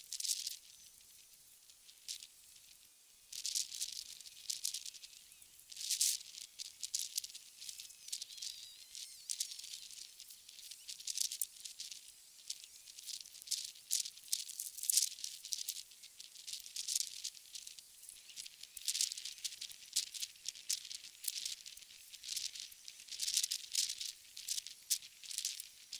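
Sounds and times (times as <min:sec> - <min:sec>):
dry crackling and rustling: 0:00.0 - 0:25.9.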